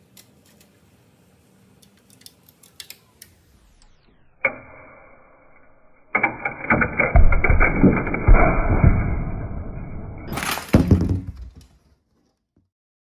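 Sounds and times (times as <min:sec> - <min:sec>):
loud sharp wood crack: 0:06.2 - 0:11.7.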